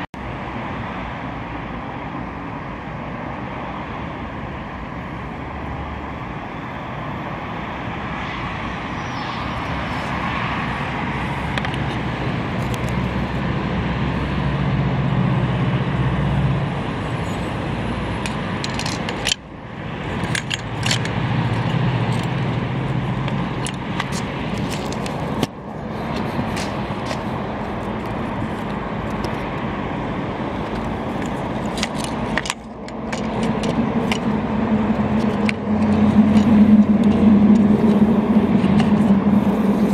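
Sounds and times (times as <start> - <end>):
road traffic noise: 0.0 - 39.9
metallic clinks and scrapes: 18.2 - 19.4, 20.0 - 29.4, 30.6 - 39.9.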